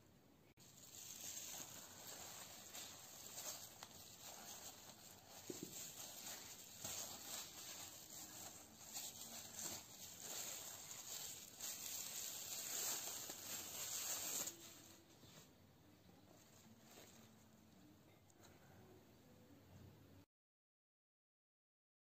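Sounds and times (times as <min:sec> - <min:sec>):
cling wrap crinkling: 0:00.6 - 0:15.5.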